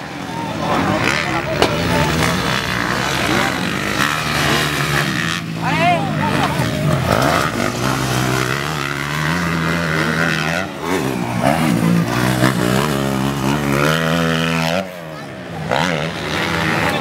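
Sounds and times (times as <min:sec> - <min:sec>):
dirt bike engines revving: 0:00.0 - 0:17.0.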